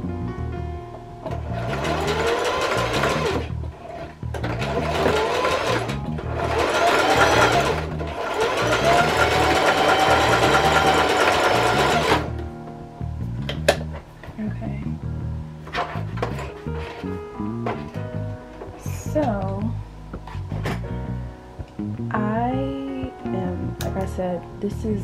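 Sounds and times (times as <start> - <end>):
background music with bass: 0.0 - 25.0
sewing machine stitching: 1.3 - 12.3.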